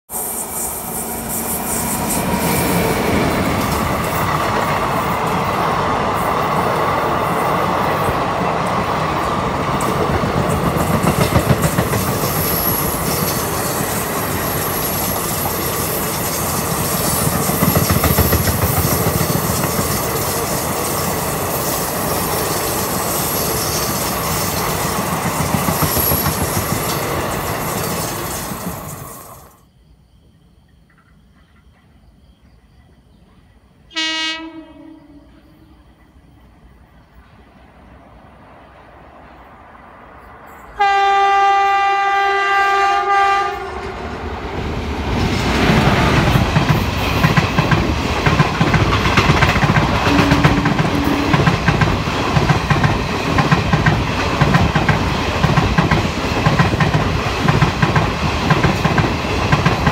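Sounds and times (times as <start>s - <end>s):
train wheels rumbling on rail: 0.1s - 29.5s, 34.4s - 59.9s.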